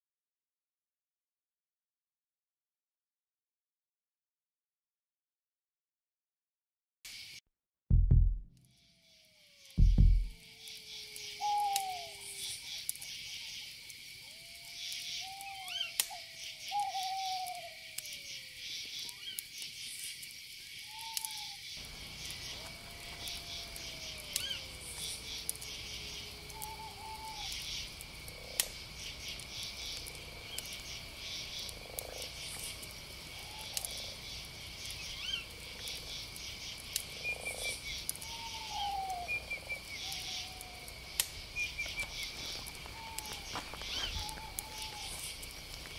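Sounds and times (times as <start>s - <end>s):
frogs and insects trilling: 8.7s - 45.9s
low even rumble: 9.8s - 10.3s.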